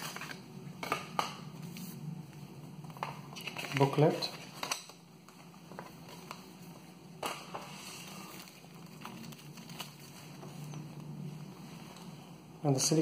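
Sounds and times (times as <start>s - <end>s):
paper and plastic bag rustling: 3.2s - 4.7s, 7.3s - 10.8s.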